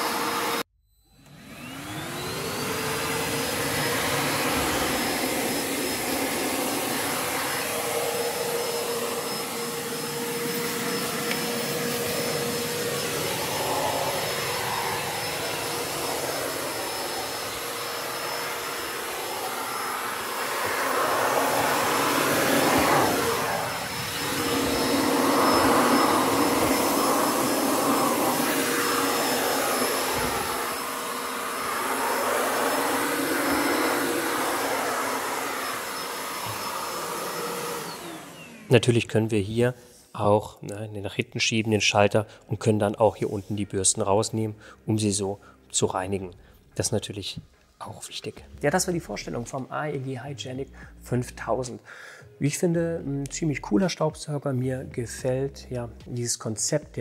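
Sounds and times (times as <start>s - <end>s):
stick vacuum running on hard floor: 0.0s - 0.6s, 1.2s - 38.7s.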